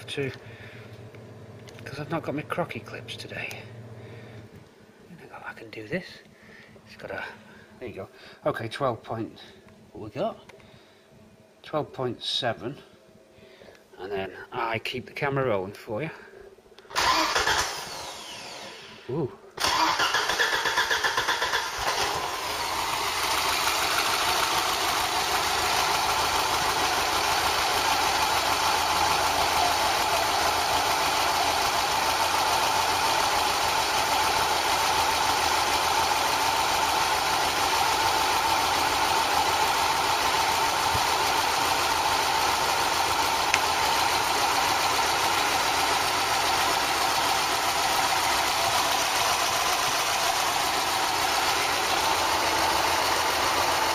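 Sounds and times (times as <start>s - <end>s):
car engine idling: 19.6s - 53.9s.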